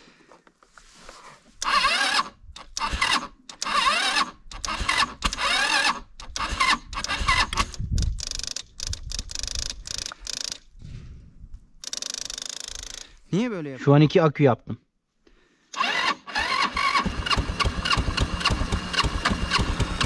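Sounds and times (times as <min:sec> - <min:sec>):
electric starter cranking: 0:01.6 - 0:10.7, 0:11.8 - 0:13.2, 0:15.7 - 0:20.0.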